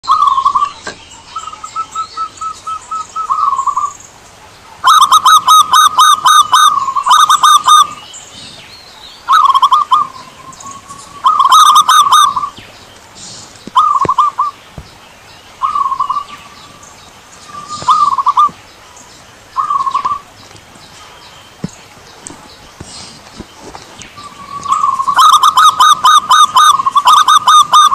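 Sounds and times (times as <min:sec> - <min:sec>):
dove cooing: 0:00.0 - 0:04.0, 0:04.7 - 0:08.5, 0:09.3 - 0:12.6, 0:13.7 - 0:14.6, 0:15.6 - 0:18.6, 0:19.6 - 0:20.3, 0:24.2 - 0:27.9.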